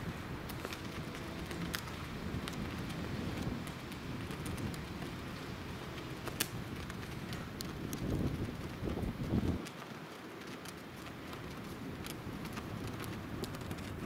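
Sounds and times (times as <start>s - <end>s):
wind buffeting microphone: 0.0s - 14.0s
sharp ticks: 0.4s - 8.9s.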